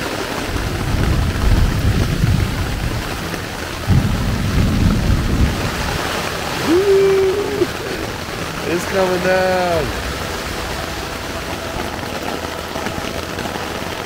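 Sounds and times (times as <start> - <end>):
heavy rain drumming on tent: 0.0 - 14.0
low rumbling: 0.2 - 14.0
man saying ooh: 6.6 - 8.1.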